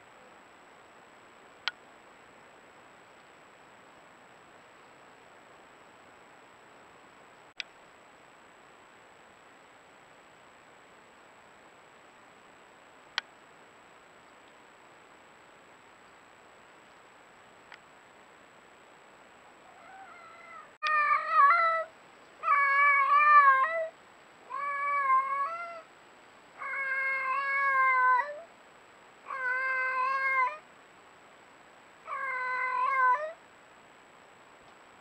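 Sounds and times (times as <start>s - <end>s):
cat yowling: 19.7s - 23.9s, 24.5s - 25.9s, 26.6s - 28.5s, 29.3s - 30.6s, 32.1s - 33.4s.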